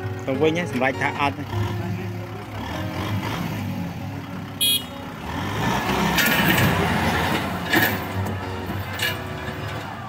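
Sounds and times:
diesel tractor engines running: 0:00.0 - 0:10.0
disc plough through soil: 0:05.5 - 0:09.9.

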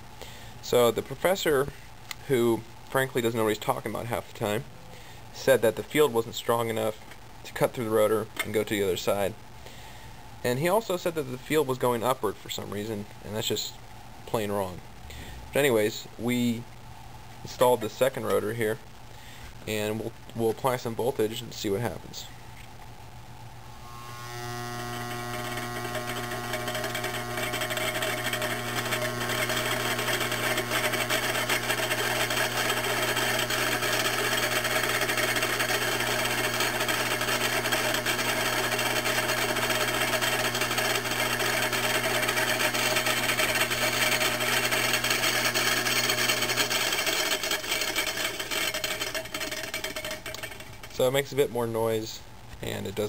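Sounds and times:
electrical hum: 0:21.8 - 0:53.0
motor rotor whirring and rattling: 0:24.2 - 0:50.9.

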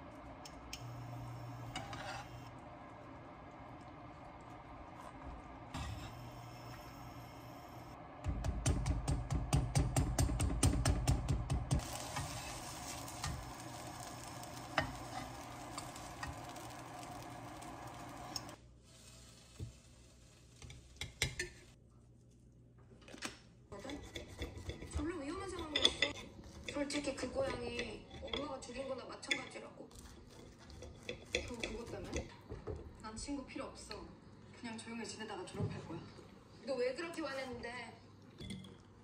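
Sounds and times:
utensils scraping and tapping pan: 0:00.8 - 0:02.5, 0:11.7 - 0:18.6, 0:20.5 - 0:21.8, 0:23.8 - 0:32.4
food sizzling in frying pan: 0:00.8 - 0:03.1, 0:11.7 - 0:21.8.

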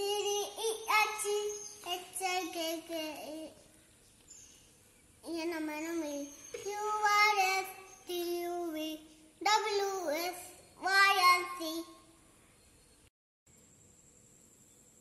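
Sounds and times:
young child singing: 0:00.0 - 0:03.6, 0:05.2 - 0:12.0.

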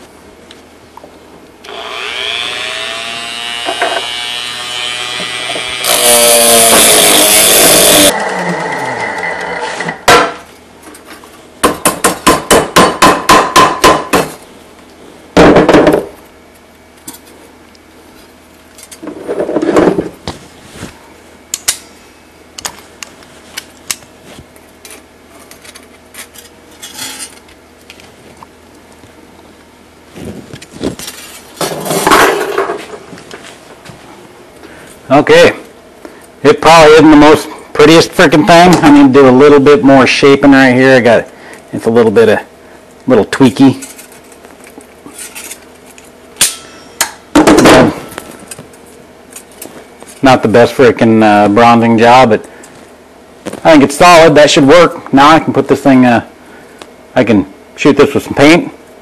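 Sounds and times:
rotary tool grinding metal: 0:01.7 - 0:10.0
hammer striking metal: 0:46.4 - 0:47.2.

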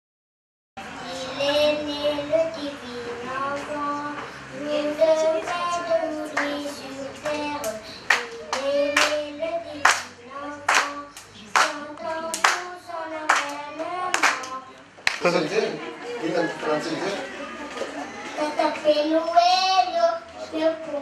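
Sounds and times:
child singing into a microphone: 0:00.9 - 0:14.8, 0:18.3 - 0:21.0
people clapping to a beat: 0:05.4 - 0:15.3.

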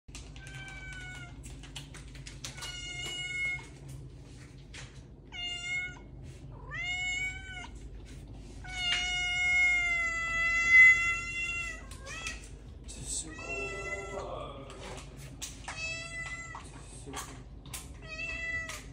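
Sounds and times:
cat meowing: 0:00.4 - 0:01.4, 0:02.5 - 0:03.8, 0:05.3 - 0:07.8, 0:08.6 - 0:12.5, 0:13.3 - 0:14.3, 0:15.6 - 0:16.6, 0:18.0 - 0:18.9.

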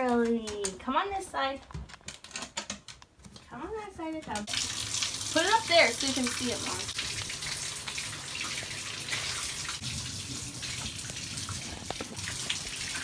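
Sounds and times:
water running into bathtub: 0:04.1 - 0:13.0.

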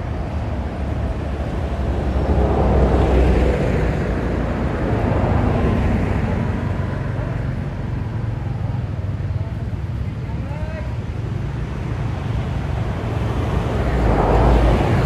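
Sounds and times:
motor vehicle passing: 0:11.8 - 0:15.0.

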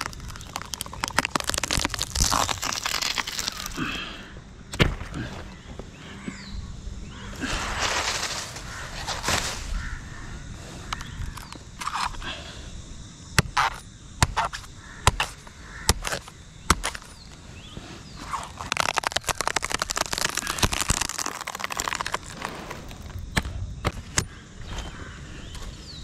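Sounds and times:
leaf sheath crackling and tearing: 0:00.0 - 0:04.1, 0:18.2 - 0:23.3.

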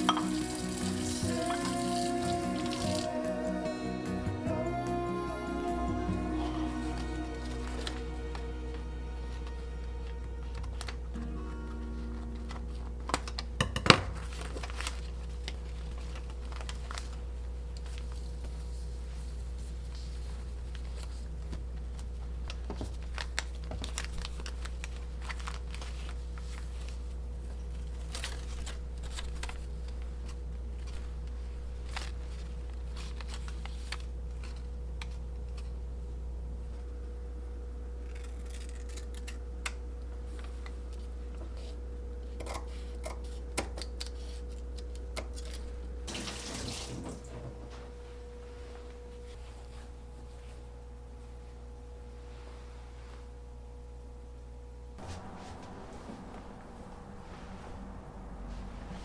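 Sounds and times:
steady low hum: 0:00.0 - 0:59.0
cloth napkins rustling: 0:06.8 - 0:34.7, 0:55.0 - 0:59.0
cloth swishing: 0:55.0 - 0:59.0.

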